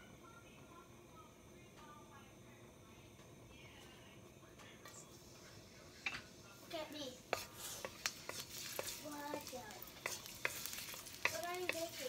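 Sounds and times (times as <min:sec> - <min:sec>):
garlic sizzling in oil: 0:06.6 - 0:12.0
wooden spatula scraping pan: 0:07.1 - 0:12.0.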